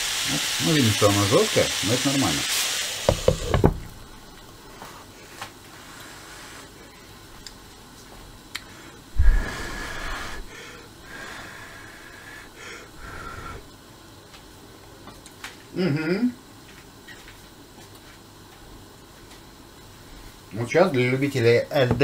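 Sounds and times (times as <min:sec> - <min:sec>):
covered pan hissing: 0:00.0 - 0:06.9, 0:08.7 - 0:13.8.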